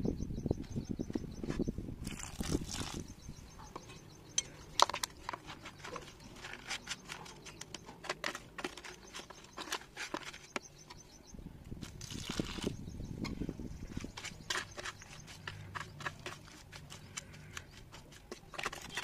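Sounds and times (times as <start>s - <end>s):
metal spoon scraping wet clay: 4.4s - 10.7s, 13.8s - 19.0s.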